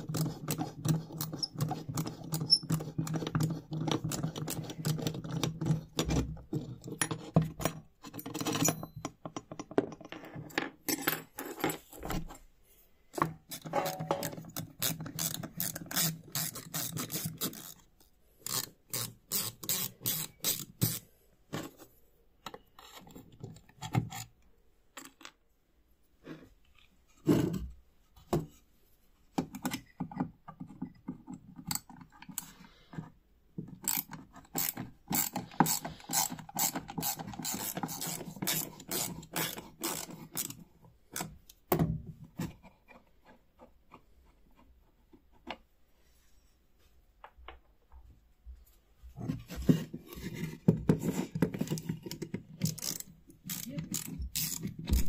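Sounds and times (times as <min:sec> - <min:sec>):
screwdriver bit scraping screw heads: 0:00.0 - 0:09.1, 0:13.5 - 0:21.0, 0:33.8 - 0:41.3, 0:51.0 - 0:55.0
ratchet screwdriver clicking: 0:52.7 - 0:55.0.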